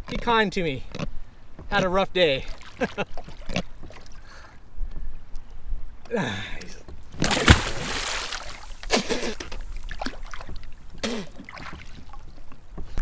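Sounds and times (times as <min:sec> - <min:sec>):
water splashing beside a kayak: 0:01.4 - 0:04.6, 0:06.9 - 0:13.0.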